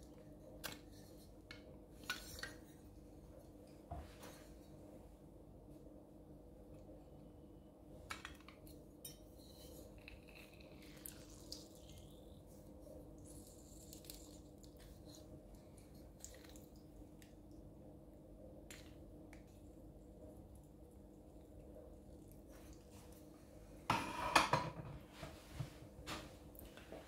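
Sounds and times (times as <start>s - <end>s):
juice dripping into cup: 9.9s - 17.7s.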